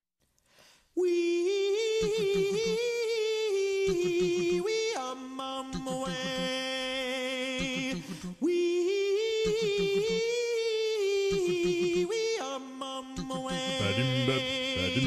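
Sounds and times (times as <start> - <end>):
a cappella singing with vibrato: 1.0 - 15.0
quick rhythmic low pulse: 13.5 - 15.0.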